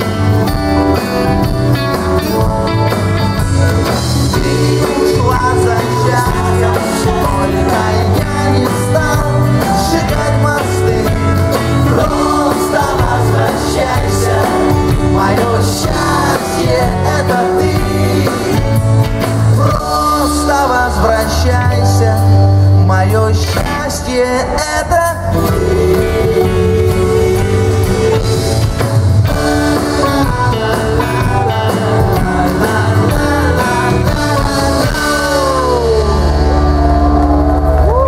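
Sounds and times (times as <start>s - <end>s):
drums: 0.0s - 38.0s
electric bass: 0.0s - 38.0s
electric guitars: 0.0s - 38.0s.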